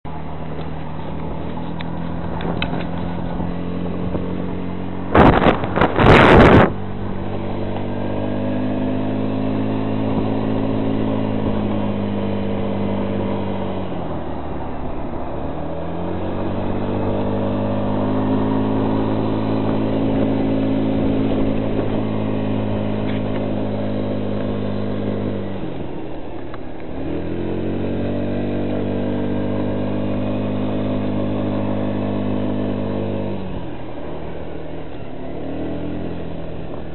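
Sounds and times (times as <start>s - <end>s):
vehicle engine revving: 0.1s - 36.9s
loud bumps: 5.1s - 6.8s.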